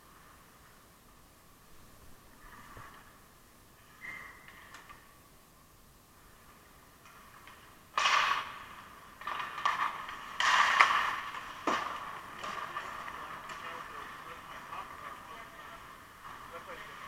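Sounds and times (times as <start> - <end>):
stick hitting puck: 7.4 - 13.7
skate blades scraping ice: 7.4 - 17.0.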